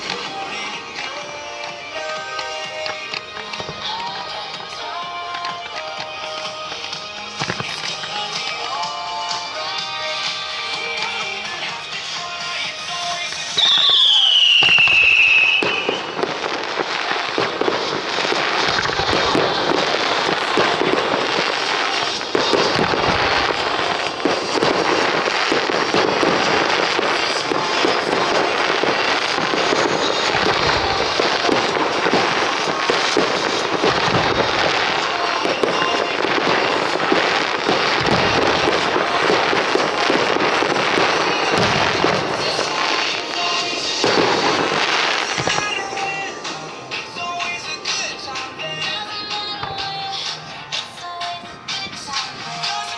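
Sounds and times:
fireworks popping and crackling: 0.0s - 52.9s
deep firework booms: 13.6s - 48.9s.

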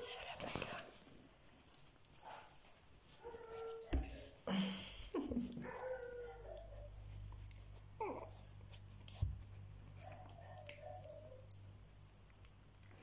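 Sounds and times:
puppies whimpering: 8.0s - 8.6s.

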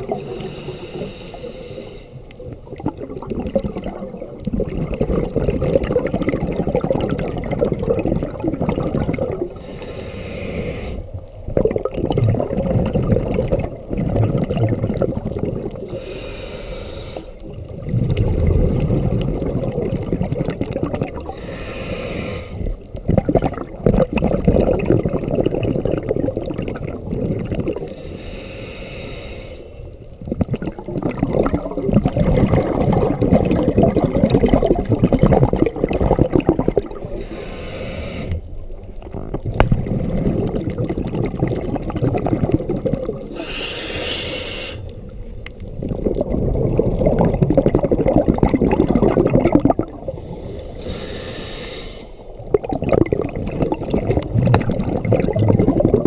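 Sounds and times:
regulator inhale hiss: 0.0s - 2.3s, 9.5s - 11.2s, 15.8s - 17.6s, 21.2s - 22.8s, 27.8s - 30.1s, 37.0s - 38.6s, 43.2s - 45.1s, 50.1s - 52.4s
underwater bubbling: 0.0s - 56.0s.

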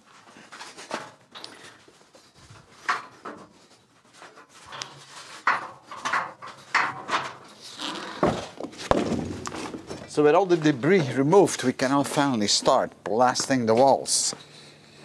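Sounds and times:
boots clanking on metal scaffold: 4.2s - 14.3s.

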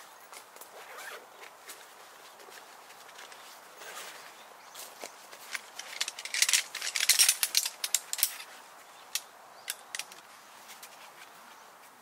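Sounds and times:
metal stand clicking and clattering: 5.5s - 8.5s, 9.1s - 10.2s.

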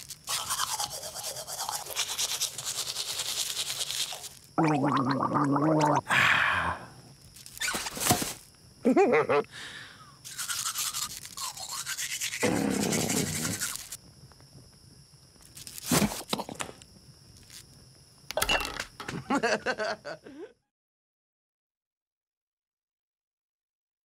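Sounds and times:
cartoon scratchy munching: 0.0s - 6.0s, 10.2s - 14.0s, 15.6s - 16.6s.

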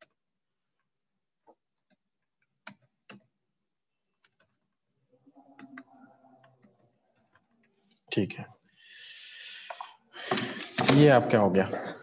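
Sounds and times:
computer keys and mouse clicking: 0.0s - 3.4s, 4.2s - 4.8s, 5.4s - 7.9s.

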